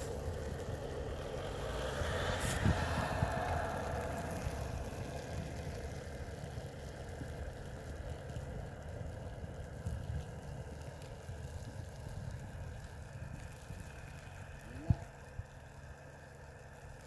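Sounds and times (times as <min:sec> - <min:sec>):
pickup truck engine running: 0:00.0 - 0:17.0.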